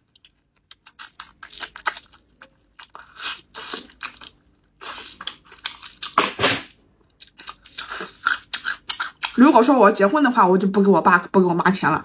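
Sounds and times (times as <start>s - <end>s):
biting and chewing meat: 0.0s - 9.6s.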